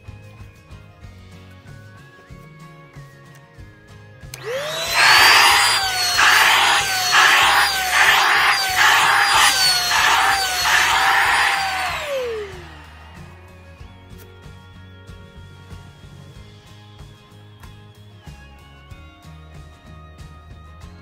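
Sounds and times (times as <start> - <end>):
hand vacuum whine and suction: 4.4 - 14.0
vacuum winding down: 4.4 - 14.2.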